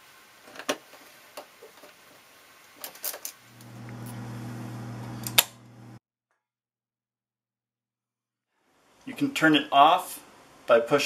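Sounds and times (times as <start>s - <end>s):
low hum: 3.5s - 6.0s.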